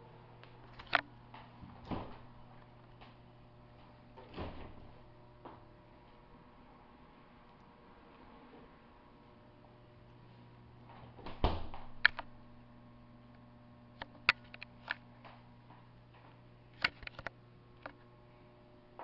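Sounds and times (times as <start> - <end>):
low steady hum: 0.0 - 19.0
refrigerator door thump: 11.2 - 12.0.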